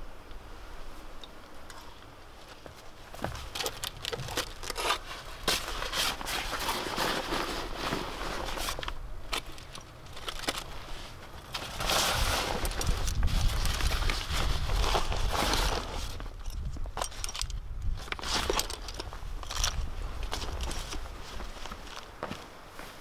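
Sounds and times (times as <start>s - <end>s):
nylon backpack rustling: 2.4s - 23.0s
metal climbing gear clicking: 14.8s - 21.0s.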